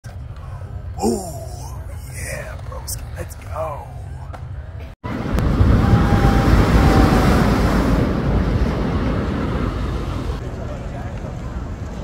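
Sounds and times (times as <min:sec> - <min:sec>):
ocean surf breaking: 0:05.1 - 0:10.4
wind buffeting microphone: 0:05.1 - 0:10.4.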